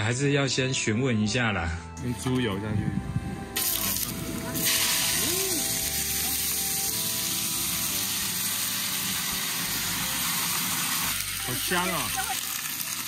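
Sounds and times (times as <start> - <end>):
lard sizzling in a wok: 3.6 - 13.0.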